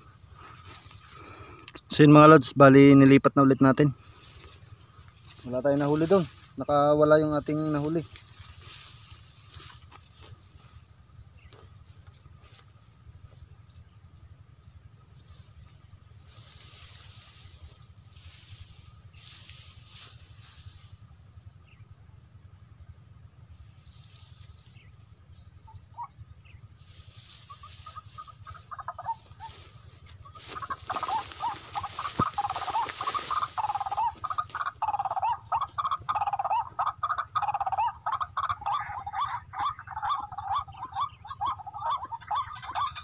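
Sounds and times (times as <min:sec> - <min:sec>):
bird clucking call: 0:25.5 - 0:43.0.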